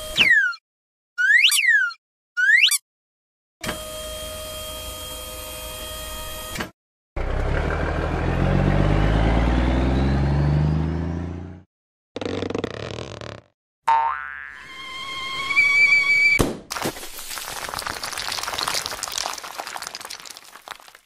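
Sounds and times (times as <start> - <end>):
truck engine revving: 7.2 - 11.6.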